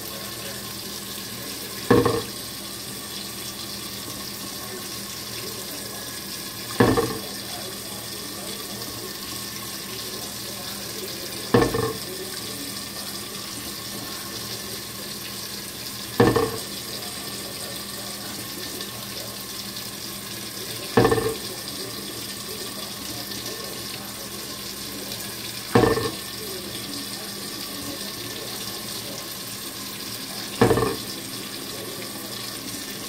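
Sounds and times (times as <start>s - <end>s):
tap water running into sink: 0.0s - 33.0s
glass lid clunking against sink: 1.9s - 2.3s, 6.8s - 7.3s, 11.6s - 12.1s, 16.2s - 16.7s, 21.0s - 21.5s, 25.8s - 26.2s, 30.6s - 31.1s.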